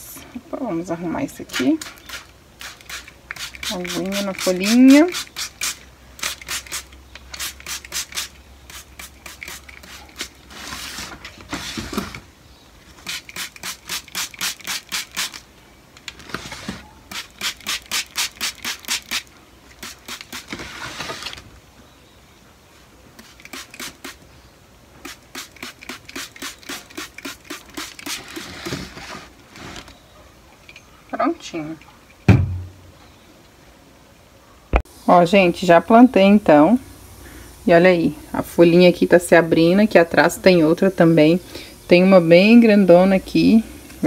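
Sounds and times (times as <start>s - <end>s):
spray bottle spraying: 1.5s - 10.9s, 13.0s - 15.4s, 17.1s - 20.6s, 23.2s - 24.2s, 25.0s - 28.7s.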